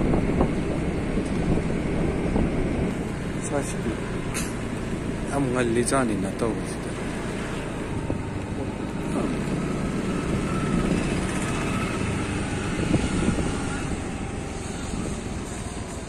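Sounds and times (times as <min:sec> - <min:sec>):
road noise: 0:00.0 - 0:16.0
small motorbike engine running: 0:00.0 - 0:16.0.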